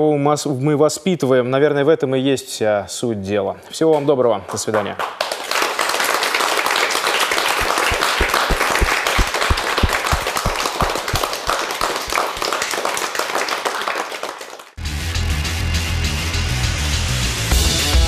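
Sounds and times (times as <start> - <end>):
audience applauding: 4.8 - 14.8.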